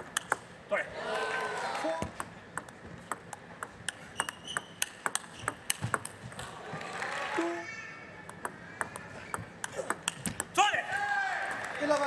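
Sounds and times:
table tennis ball clicking: 0.0s - 0.5s, 2.1s - 6.5s, 8.2s - 10.6s
crowd noise: 0.7s - 2.5s, 6.2s - 12.0s.

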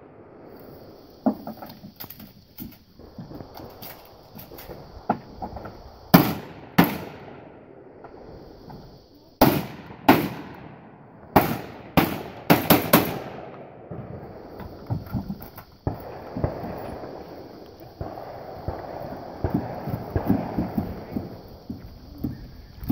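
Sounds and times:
gunshots: 6.1s - 7.6s, 9.4s - 14.0s.

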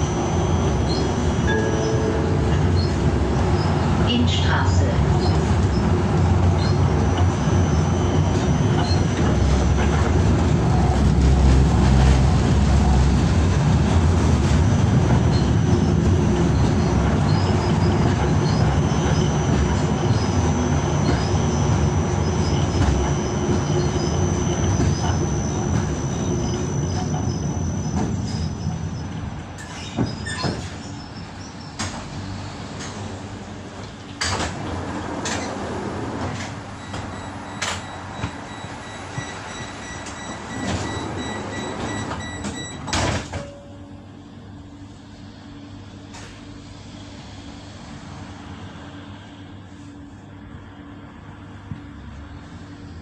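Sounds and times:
high whine: 0.0s - 29.2s
tram wheels rumbling on track: 0.0s - 53.0s.

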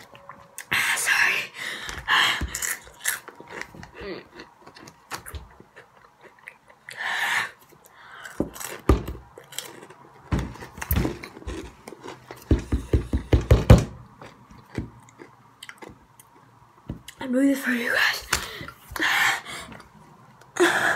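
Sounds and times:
chewing crunchy snack chips: 2.5s - 7.0s, 8.1s - 12.4s, 14.2s - 16.5s.

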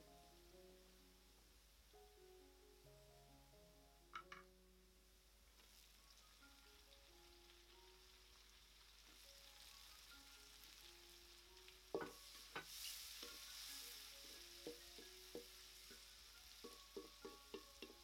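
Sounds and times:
food sizzling in a pan: 5.1s - 18.0s
spatula tapping against pan: 11.9s - 13.4s, 14.3s - 18.0s.

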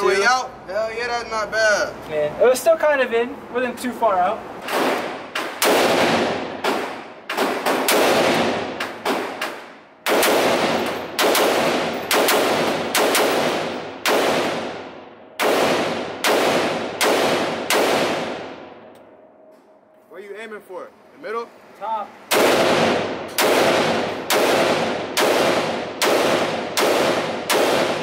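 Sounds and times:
rifle gunshots echoing indoors: 4.7s - 18.9s, 22.3s - 28.0s.

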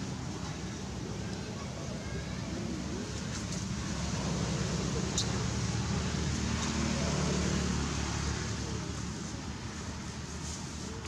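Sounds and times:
faint indistinct voices: 0.0s - 5.6s.

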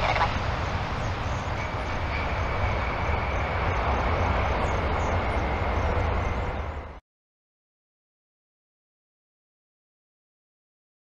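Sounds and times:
jet engines roaring: 0.0s - 7.0s.

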